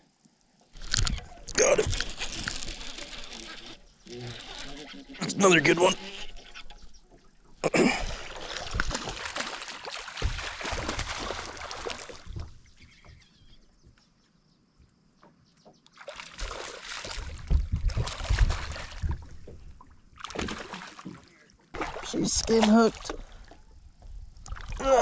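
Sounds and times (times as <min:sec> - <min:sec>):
fish splashing in water: 0:08.0 - 0:12.6, 0:16.0 - 0:19.5, 0:20.1 - 0:23.6.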